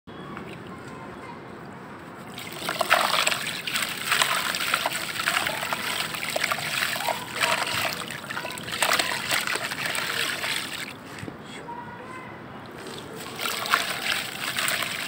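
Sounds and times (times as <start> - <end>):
water splashing and sloshing: 2.2 - 11.2, 12.7 - 15.0.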